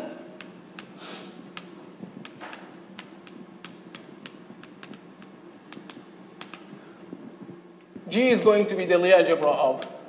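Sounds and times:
faint room hum: 0.0 - 10.0
chalk tapping on blackboard: 0.4 - 6.7, 9.1 - 10.0.

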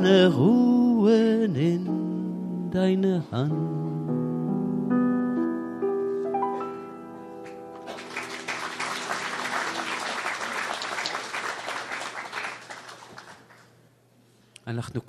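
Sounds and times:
piano chord: 0.0 - 10.4
audience applause: 7.8 - 13.8.

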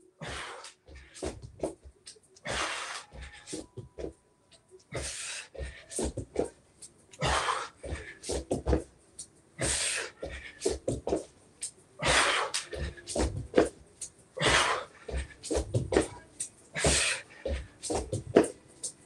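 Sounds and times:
man breathing hard: 0.2 - 1.4, 2.4 - 3.7, 4.9 - 6.5, 7.2 - 8.5, 9.6 - 10.8, 12.0 - 13.7, 14.4 - 18.6
hands and feet thudding on mat: 0.2 - 4.2, 4.9 - 6.6, 7.2 - 8.9, 9.6 - 11.3, 12.0 - 13.8, 14.4 - 16.2, 16.8 - 19.0.

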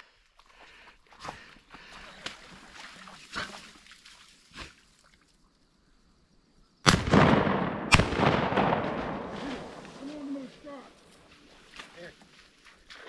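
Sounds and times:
shotgun shots echoing: 6.9 - 10.3.

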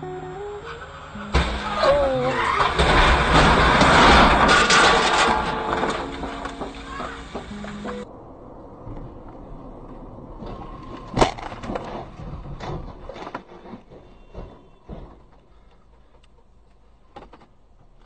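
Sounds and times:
car road noise: 0.0 - 18.0
car crash: 0.6 - 15.4
debris knocking and clattering: 1.2 - 1.8, 2.4 - 8.0.

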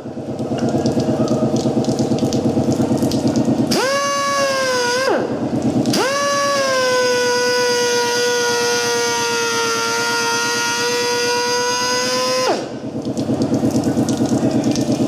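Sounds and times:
air grinder whining on glass: 3.7 - 5.2, 6.0 - 12.8.

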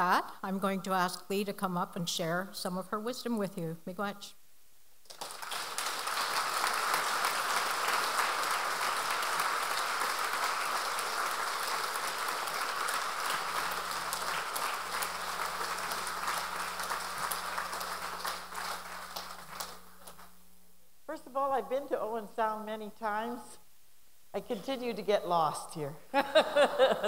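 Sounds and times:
audience applauding: 5.1 - 20.3.

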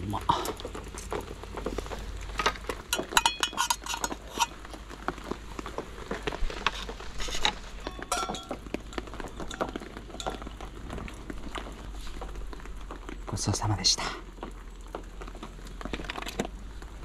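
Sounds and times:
metal cups clinking: 2.4 - 4.6, 7.2 - 8.6, 9.3 - 10.6.

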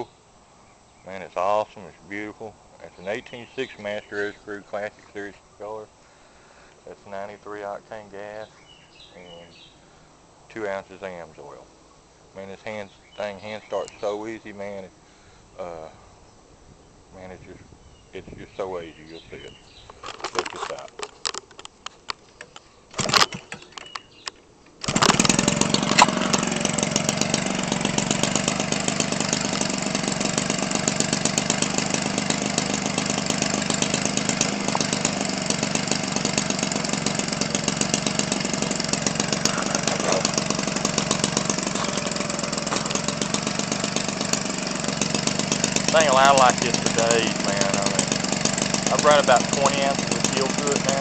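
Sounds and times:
propeller clicks: 19.9 - 51.0
two-stroke engine running: 24.8 - 51.0.

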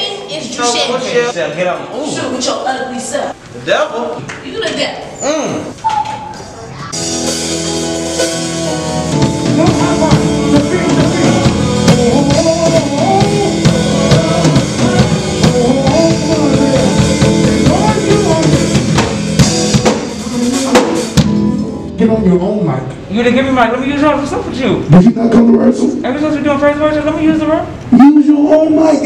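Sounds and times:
drum kit: 5.9 - 21.9
bass guitar: 6.9 - 23.1
keyboard holding a chord: 7.0 - 22.9.

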